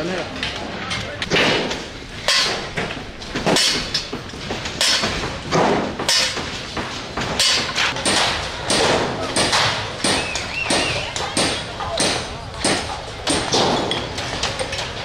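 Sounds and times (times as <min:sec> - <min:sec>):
sledgehammer blows ringing: 0:03.4 - 0:14.2.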